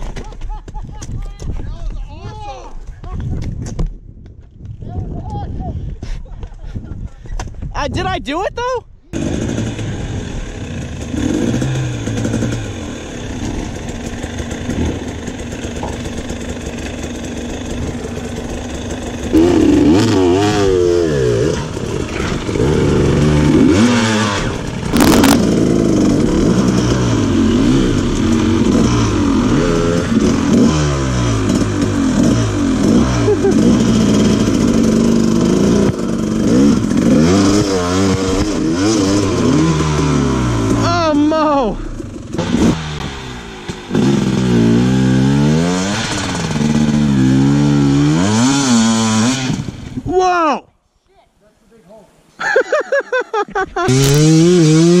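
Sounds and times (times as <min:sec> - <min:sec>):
dirt bike engine revving: 0:09.1 - 0:50.1, 0:53.8 - 0:55.0.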